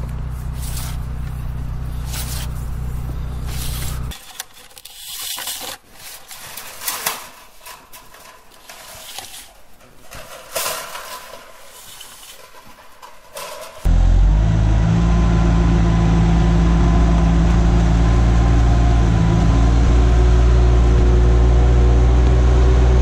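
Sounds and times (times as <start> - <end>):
diesel engine idling: 0.0 - 4.1, 13.9 - 23.0.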